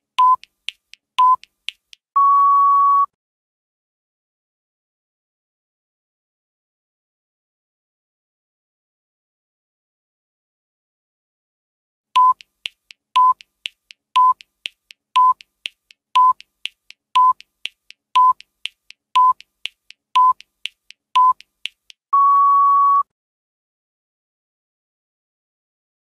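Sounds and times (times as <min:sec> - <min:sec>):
short timer beeps: 0:00.2 - 0:00.5, 0:01.2 - 0:01.5, 0:12.2 - 0:12.5, 0:13.2 - 0:13.5, 0:14.2 - 0:14.5, 0:15.2 - 0:15.5, 0:16.2 - 0:16.5, 0:17.2 - 0:17.5, 0:18.2 - 0:18.5, 0:19.2 - 0:19.5, 0:20.2 - 0:20.5, 0:21.2 - 0:21.5
faint ticks: 0:00.2 - 0:02.0, 0:12.2 - 0:22.0
longer higher beep: 0:22.2 - 0:23.1.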